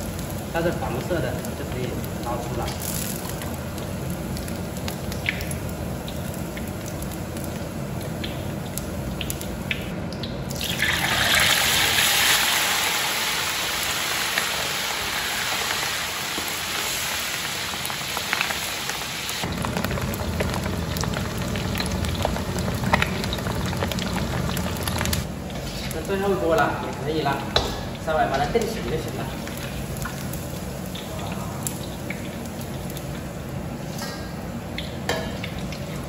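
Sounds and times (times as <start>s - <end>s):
pig skin deep-frying in oil: 0.0s - 36.0s.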